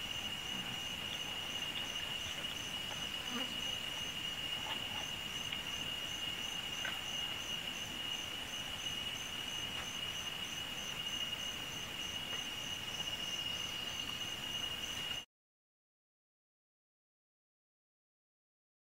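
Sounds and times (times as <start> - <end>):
fast insect chirp: 0.0 - 15.2.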